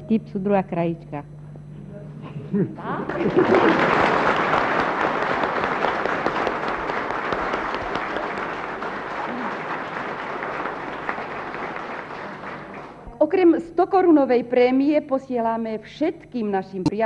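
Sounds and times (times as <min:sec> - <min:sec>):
audience applauding: 0:02.9 - 0:13.2.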